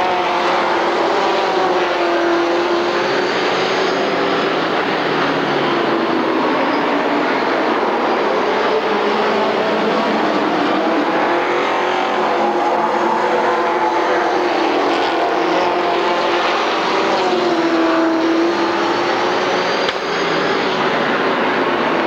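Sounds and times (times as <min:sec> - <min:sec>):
racing car engines droning: 0:00.0 - 0:22.0.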